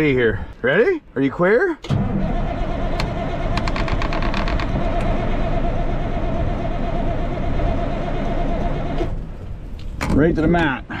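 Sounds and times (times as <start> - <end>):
diesel engine cranking on starter: 1.8 - 9.4.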